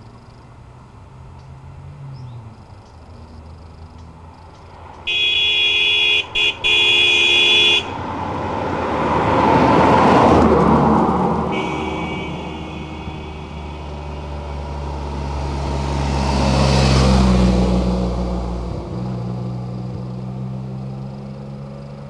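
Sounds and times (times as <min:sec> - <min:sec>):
car passing by: 0:01.1 - 0:22.0
second horn sounding: 0:05.1 - 0:08.0, 0:11.4 - 0:14.5
car horn blowing: 0:05.1 - 0:08.1, 0:11.4 - 0:14.5.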